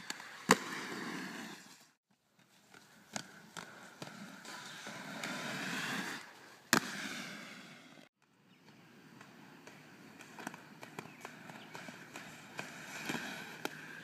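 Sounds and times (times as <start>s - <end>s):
skate wheels rolling on pavement: 0.0s - 14.0s
skateboard landing impact: 6.7s - 7.4s.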